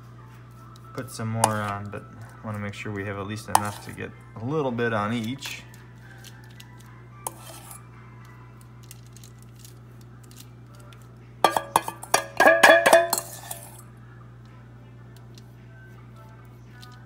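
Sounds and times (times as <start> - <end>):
faint steady hum: 5.6 - 17.0
metal spoon clinking in bowl: 11.4 - 13.8.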